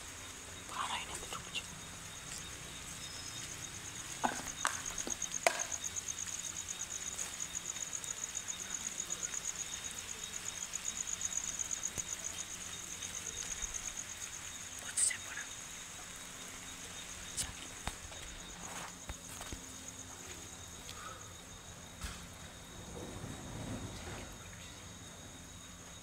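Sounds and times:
cricket trilling: 0.0s - 26.0s.

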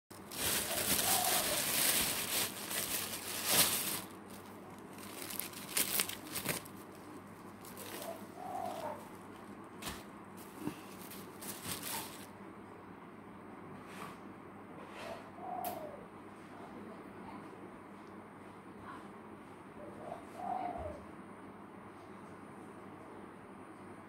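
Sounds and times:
vegetables and leaves rustling: 0.1s - 12.3s.

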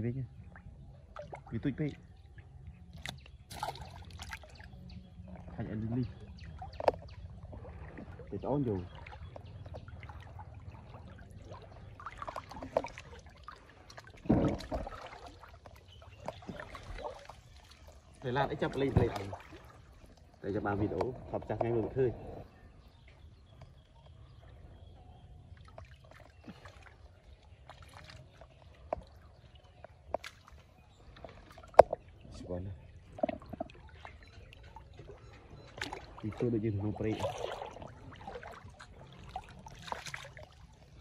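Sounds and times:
pond water sloshing and trickling: 0.0s - 41.0s
small water splashes: 0.0s - 41.0s
small drips and clicks: 5.6s - 21.8s, 25.6s - 32.4s, 33.0s - 40.8s.

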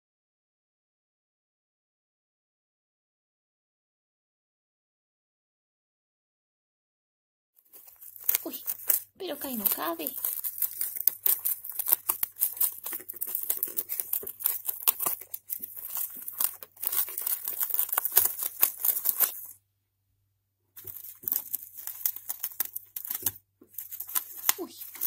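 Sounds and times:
gerbils gnawing cardboard: 7.6s - 19.6s, 20.8s - 25.0s
rustling in wood shavings: 7.6s - 19.6s, 20.8s - 25.0s.

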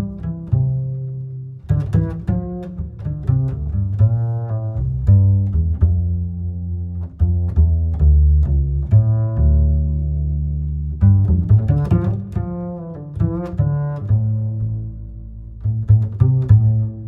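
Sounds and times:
low bass line: 0.0s - 17.0s
string instrument tune: 0.0s - 17.0s.

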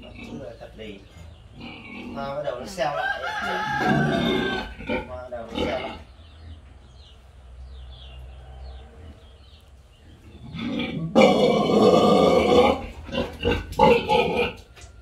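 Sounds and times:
pig calling: 0.0s - 6.1s, 10.2s - 14.8s.

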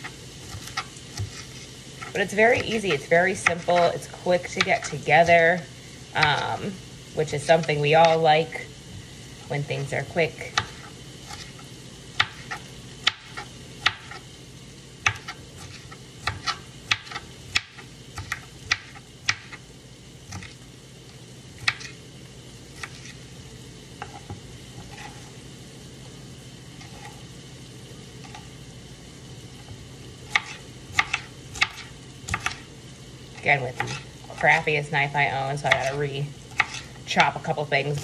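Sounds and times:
meat sizzling in a pan: 0.0s - 38.0s
knife chopping on cutting board: 0.4s - 2.1s, 10.5s - 11.5s, 12.2s - 14.2s, 15.0s - 19.6s, 30.3s - 32.6s, 33.8s - 34.0s, 35.7s - 36.9s.

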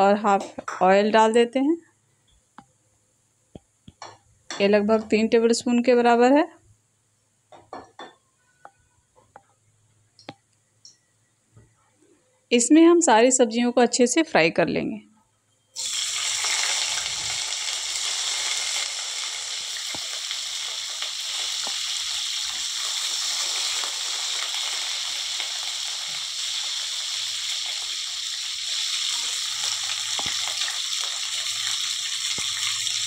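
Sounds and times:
vegetables sizzling in oil: 15.8s - 33.0s.

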